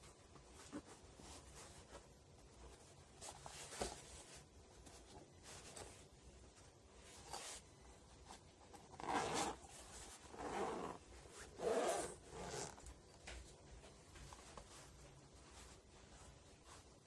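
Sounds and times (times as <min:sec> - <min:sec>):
zipper rasping open: 0:08.8 - 0:12.9.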